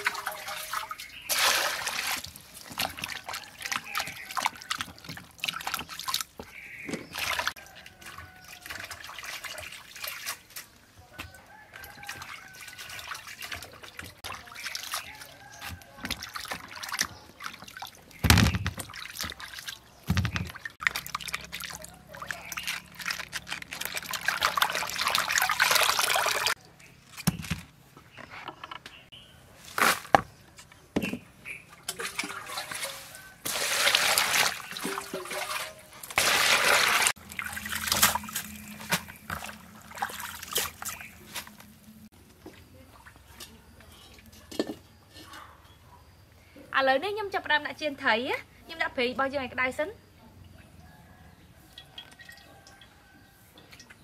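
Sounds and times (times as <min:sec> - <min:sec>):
water pouring over vegetables: 0:00.0 - 0:06.3, 0:20.6 - 0:26.6, 0:32.0 - 0:41.4
sharp knocks and handling noises: 0:20.0 - 0:21.6.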